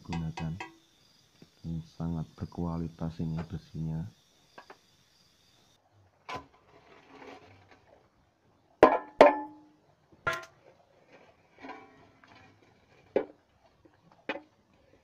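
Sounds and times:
steel pipe clanking on ground: 0.0 - 0.8, 8.8 - 10.6, 11.6 - 13.4.

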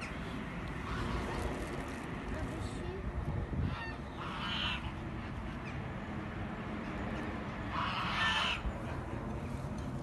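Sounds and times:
geese honking: 3.7 - 5.0, 7.7 - 8.7.

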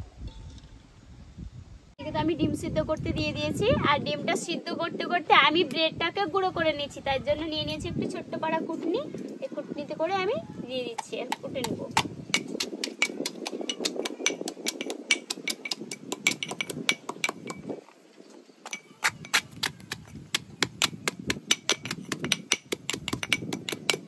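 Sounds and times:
metal pestle pounding in mortar: 10.9 - 17.7, 18.7 - 24.0.

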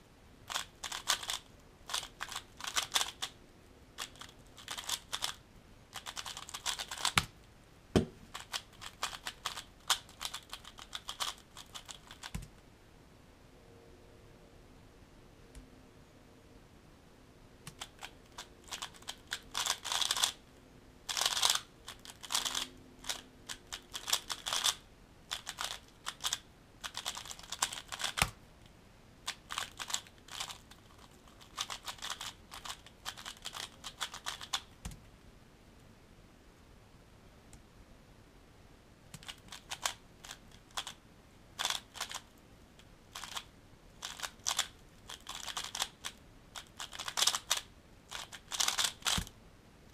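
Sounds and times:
puzzle cube plastic clicking: 0.5 - 3.4, 4.0 - 5.4, 6.0 - 7.3, 8.3 - 12.5, 17.7 - 20.4, 21.1 - 28.4, 29.3 - 35.0, 39.2 - 41.0, 41.6 - 42.4, 43.2 - 49.4.

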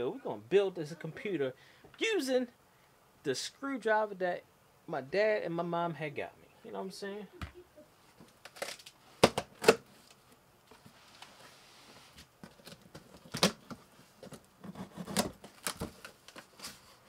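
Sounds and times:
soft rustle: 10.0 - 12.4.

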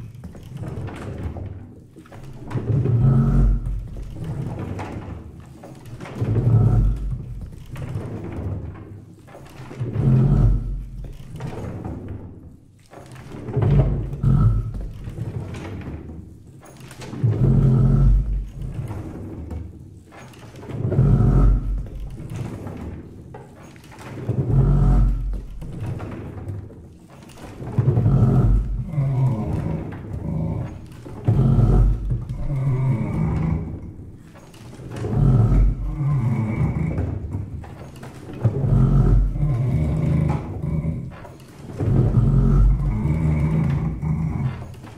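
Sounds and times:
deep wooden rumbling: 0.0 - 44.9
low rumbling percussion groan: 20.9 - 22.3, 27.8 - 33.9, 35.0 - 37.6, 38.5 - 41.2, 41.8 - 44.6.

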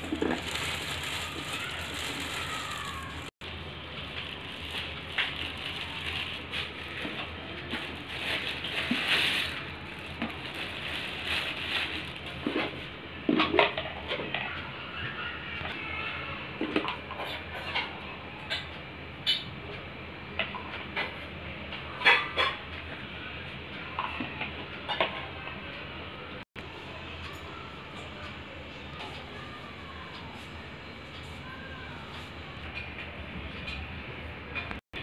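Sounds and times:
plastic wrapping crinkling: 0.0 - 12.8.

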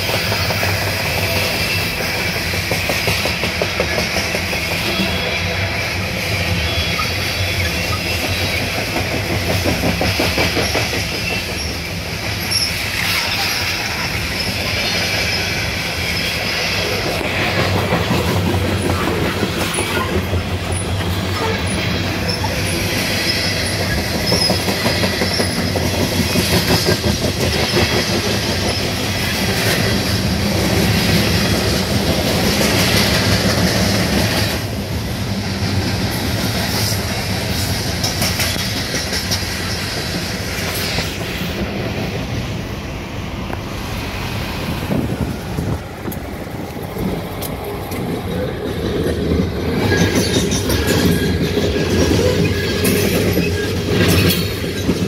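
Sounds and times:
train wheels clicking over rail joints: 0.0 - 55.0.

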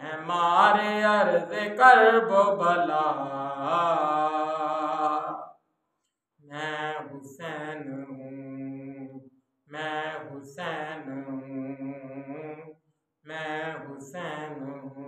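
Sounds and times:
man chanting: 0.0 - 5.5, 9.8 - 12.7, 13.3 - 15.0
breaths: 5.9 - 6.4.

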